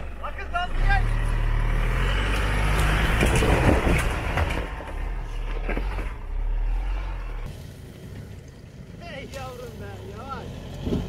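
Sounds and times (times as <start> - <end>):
truck engine revving hard: 0.5 - 7.5.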